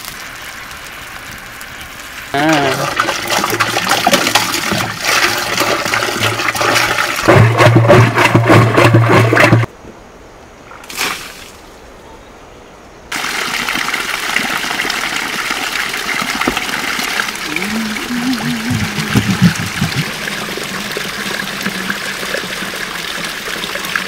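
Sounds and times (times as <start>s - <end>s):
water running down rock: 0.0s - 9.7s, 13.1s - 24.0s
water pouring from plastic can: 2.5s - 9.7s, 13.2s - 24.0s.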